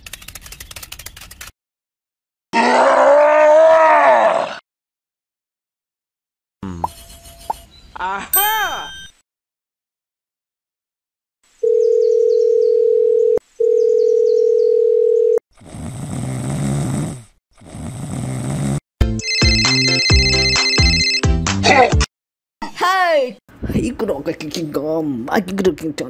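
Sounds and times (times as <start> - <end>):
cartoon snoring: 6.6 - 6.9, 15.5 - 18.8
electronic phone ringtone melody: 8.4 - 9.1, 19.2 - 21.3
phone calling tone beeps: 8.4 - 9.1, 11.6 - 15.4.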